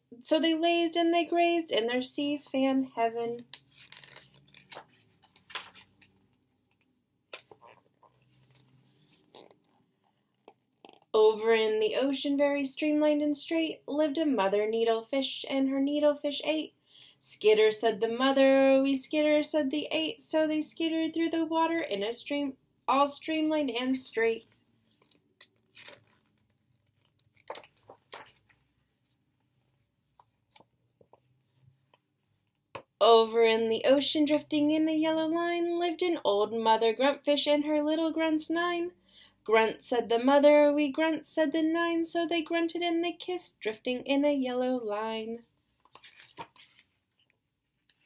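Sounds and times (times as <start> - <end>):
paper pages turning: 3.4 - 9.8, 24.8 - 28.8, 45.7 - 48.0.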